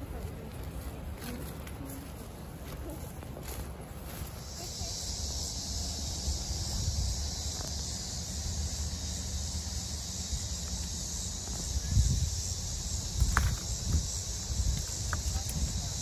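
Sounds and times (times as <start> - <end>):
steady high-pitched hiss: 0.0 - 16.0
wind rumbling on microphone: 0.0 - 16.0.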